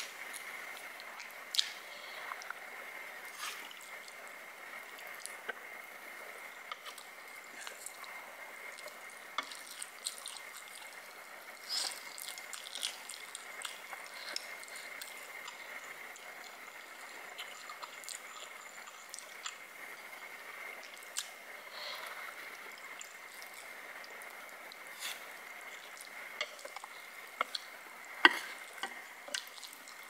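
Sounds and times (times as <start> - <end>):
faint high whine: 0.0 - 30.0
person chewing and slurping noodles: 8.7 - 19.6, 20.9 - 30.0.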